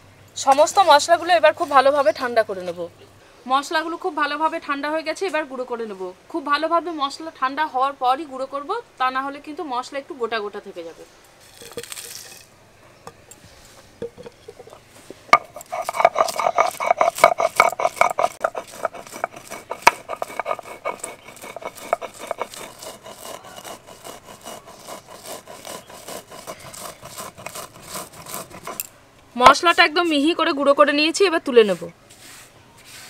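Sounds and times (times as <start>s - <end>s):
spices being ground: 0.4s - 2.3s, 11.4s - 12.5s, 13.3s - 30.4s, 31.0s - 33.0s.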